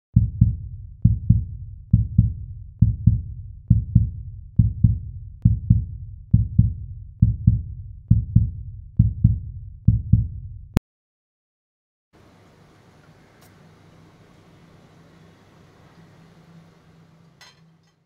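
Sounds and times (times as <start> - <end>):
heartbeat-like double thumps: 0.2 - 10.8.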